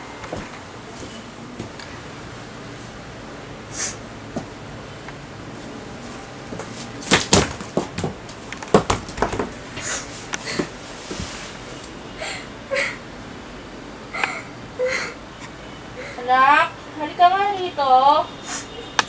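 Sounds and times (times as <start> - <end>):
person sobbing: 12.2 - 13.0, 14.1 - 15.2.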